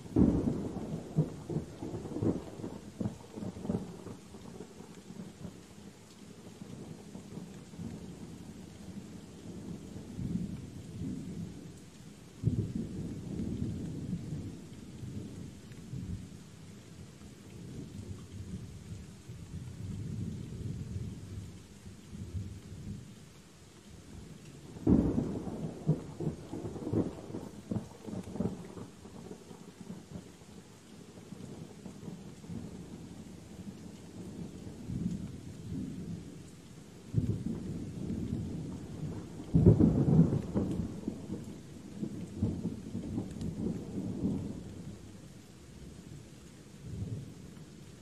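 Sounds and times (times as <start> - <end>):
steady rain: 0.0 - 48.0
thunder rumbling: 24.7 - 30.0, 37.2 - 45.0.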